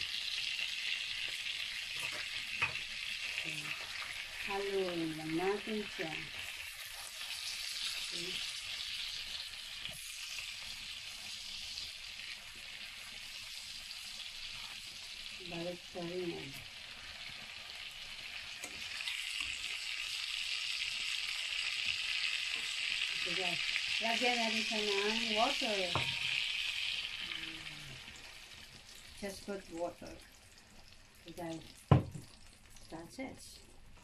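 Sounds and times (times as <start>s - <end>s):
chicken sizzling in a pan: 0.0s - 34.0s.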